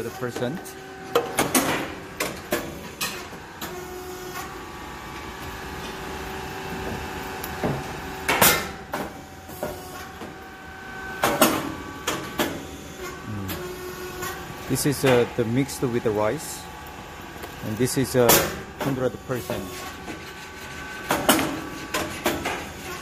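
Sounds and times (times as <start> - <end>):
machine humming: 0.0 - 23.0
sharp knocks and cracks: 7.5 - 9.1.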